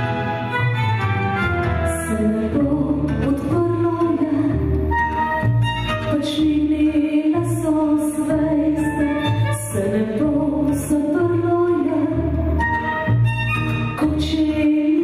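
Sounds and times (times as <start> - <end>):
instrumental accompaniment with bass: 0.0 - 15.0
woman singing into microphone: 1.8 - 5.0, 6.1 - 12.8, 14.0 - 15.0.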